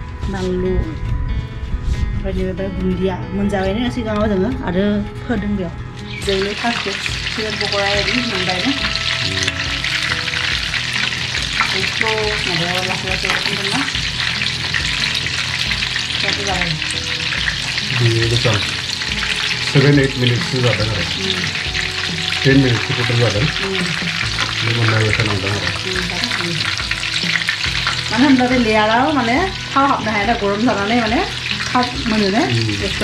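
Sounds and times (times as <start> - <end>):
wavering pitched sound: 6.0 - 26.5
chicken deep-frying in oil: 6.1 - 33.0.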